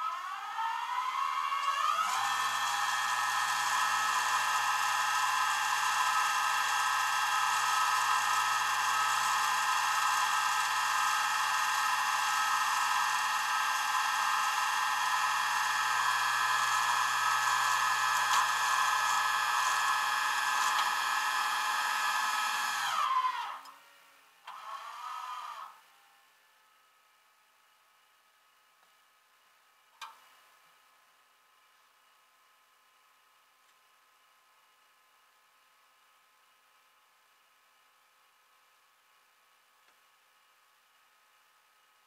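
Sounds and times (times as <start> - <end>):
winch whining: 0.0 - 23.7.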